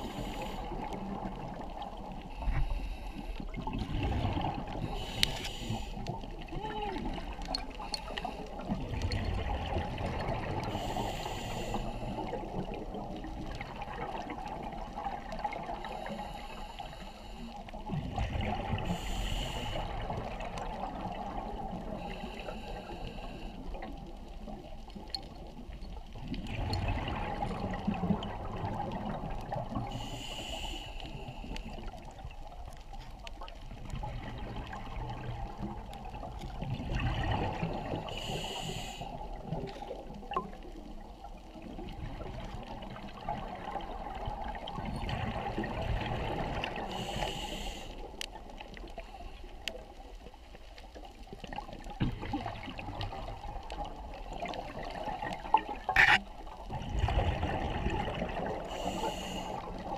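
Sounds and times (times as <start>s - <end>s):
regulator breathing hiss: 0.0s - 0.8s, 4.9s - 6.1s, 10.7s - 12.3s, 18.9s - 19.9s, 29.9s - 31.7s, 38.0s - 39.2s, 46.9s - 48.1s, 58.7s - 59.7s
underwater water noise: 0.0s - 59.9s
gurgle of exhaled bubbles: 3.5s - 5.0s, 8.6s - 10.9s, 17.8s - 19.1s, 23.9s - 30.0s, 33.4s - 38.2s, 39.3s - 46.9s, 51.3s - 58.8s.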